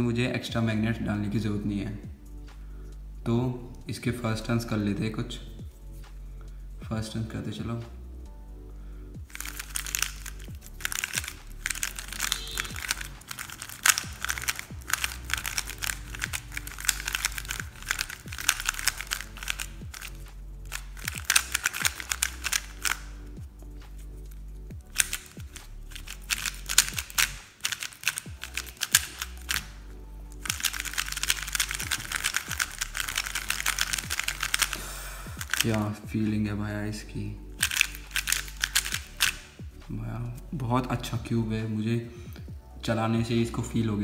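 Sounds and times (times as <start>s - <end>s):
background music: 0.0s - 44.0s
puzzle cube plastic clicks: 9.3s - 23.3s, 23.9s - 35.8s, 37.6s - 39.5s.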